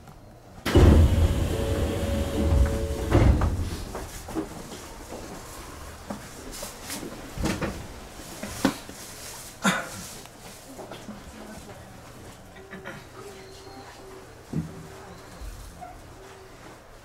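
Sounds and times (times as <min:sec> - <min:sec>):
low background noise: 0:00.0 - 0:17.0
sliding train doors: 0:00.6 - 0:08.9
door thud: 0:00.7 - 0:04.0.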